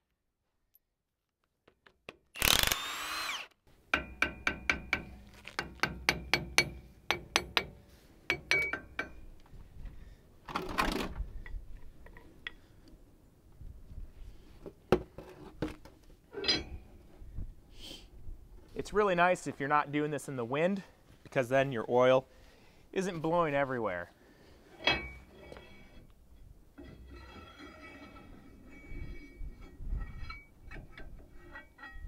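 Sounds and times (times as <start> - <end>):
power tool whirring: 2.4 - 3.6.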